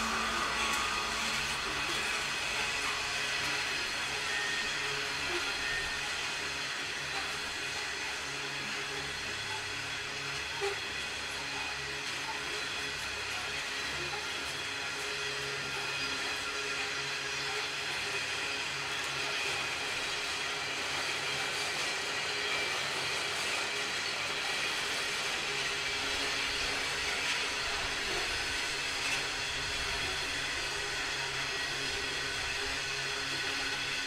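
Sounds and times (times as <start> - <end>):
train rumbling past: 0.0 - 11.9.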